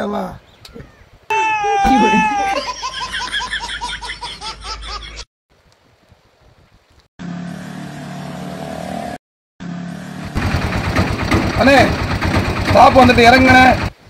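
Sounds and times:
baby laughing: 1.3s - 5.3s
auto rickshaw engine: 7.2s - 14.0s.

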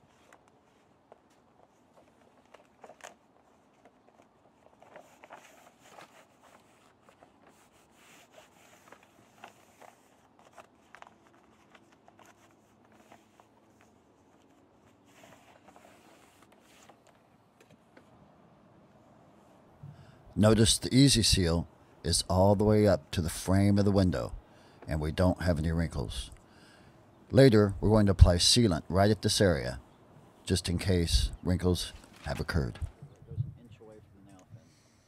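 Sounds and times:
flashing sheet rustling and crinkling: 0.0s - 17.1s.

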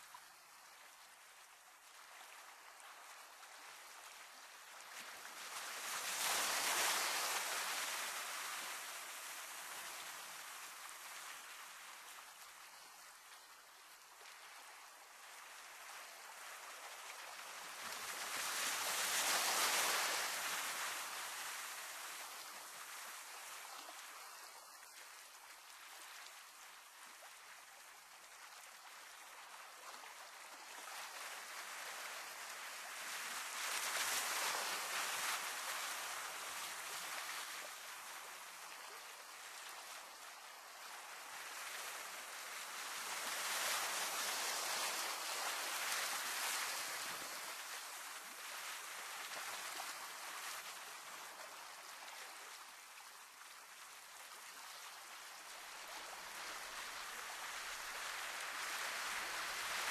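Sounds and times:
sea surf on rocky shore: 5.4s - 9.7s, 17.6s - 23.2s, 31.2s - 37.8s, 41.2s - 50.6s, 56.0s - 59.9s.

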